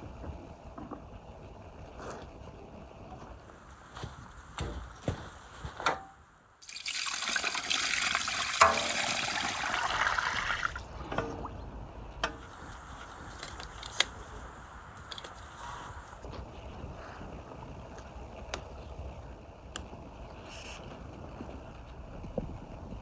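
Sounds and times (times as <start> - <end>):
water pouring into metal pot: 6.6 - 11.6.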